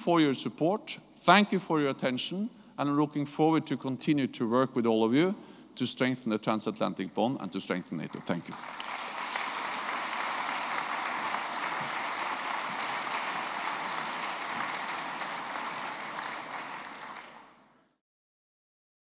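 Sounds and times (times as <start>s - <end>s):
large audience applauding: 8.0s - 17.8s.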